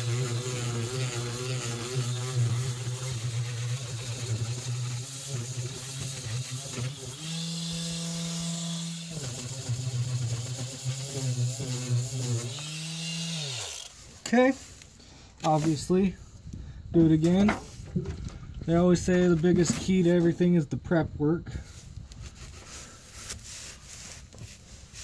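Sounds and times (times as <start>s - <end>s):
electric sander on fiberglass: 0.0s - 14.0s.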